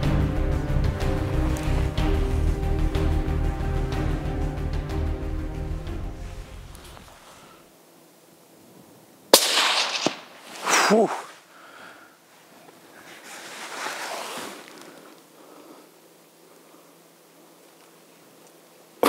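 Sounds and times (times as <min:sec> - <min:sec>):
loud breathy sound: 0:06.2 - 0:07.7, 0:10.6 - 0:12.3
rifle shot with echo: 0:09.3 - 0:10.4.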